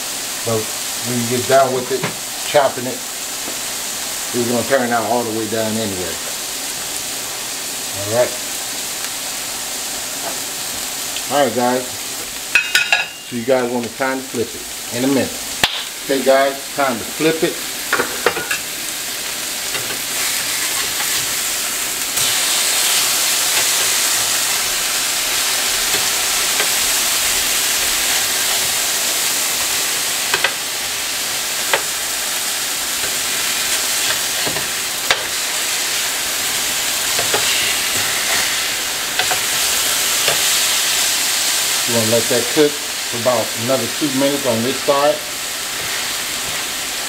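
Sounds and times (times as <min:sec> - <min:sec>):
burger patties sizzling on griddle: 0:00.0 - 0:47.0
metal spatula scraping griddle: 0:37.2 - 0:39.6.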